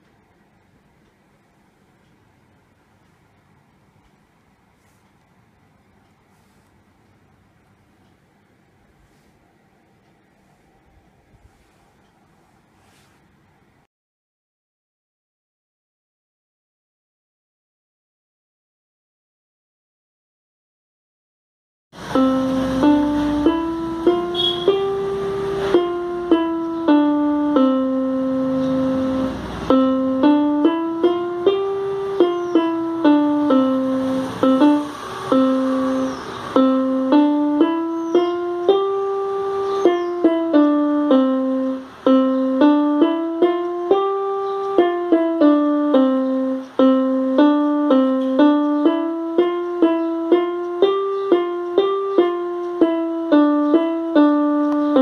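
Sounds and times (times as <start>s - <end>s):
electronic keyboard melody: 22.0s - 55.0s.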